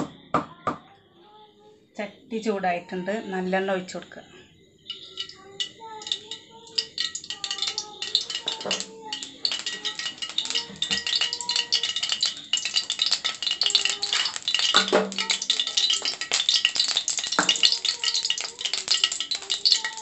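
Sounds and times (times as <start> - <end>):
oil sizzling and crackling: 4.7 - 20.0.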